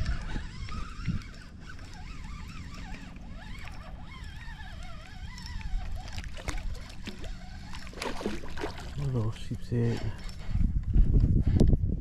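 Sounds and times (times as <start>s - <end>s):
fishing reel winding: 0.0s - 8.0s, 9.0s - 10.6s
wind rumble on microphone: 0.0s - 12.0s
fish splashing in water: 1.7s - 9.1s.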